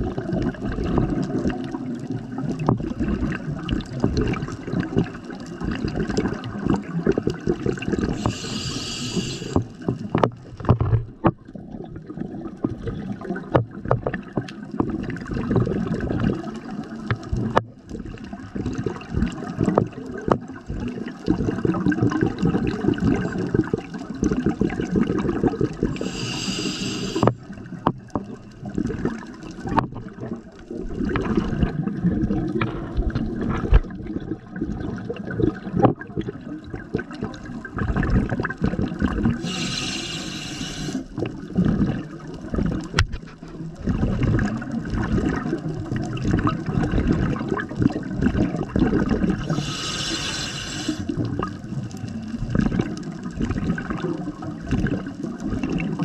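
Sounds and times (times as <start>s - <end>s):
exhaled bubbles gurgling underwater: 0.0s - 56.0s
regulator inhale hiss: 8.1s - 9.8s, 25.9s - 27.5s, 39.4s - 41.2s, 49.5s - 51.2s.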